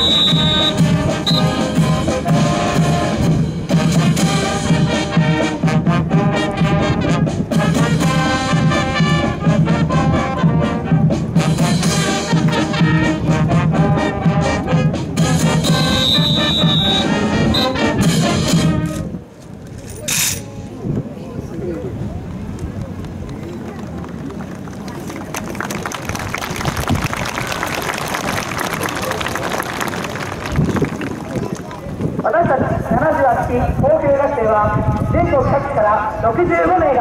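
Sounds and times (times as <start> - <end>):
brass band music: 0.0 - 19.1.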